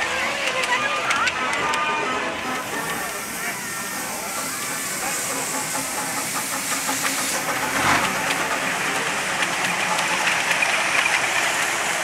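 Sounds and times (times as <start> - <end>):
steam locomotive chuffing: 0.0 - 12.0
steam hiss: 2.4 - 12.0.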